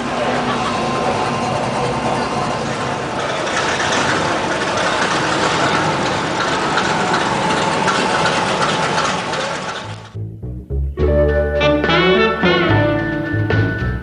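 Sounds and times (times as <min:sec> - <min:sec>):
car engines idling: 0:00.0 - 0:10.4.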